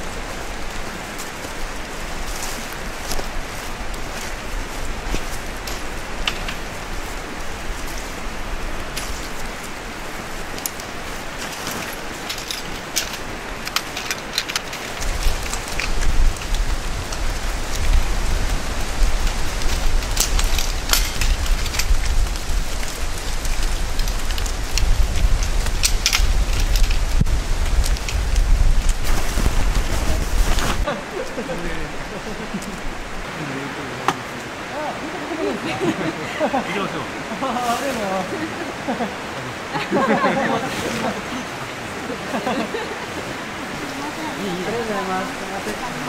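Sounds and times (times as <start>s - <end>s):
tent fabric rustling: 0.0s - 33.2s, 37.4s - 39.0s
steady rushing noise: 0.0s - 46.0s.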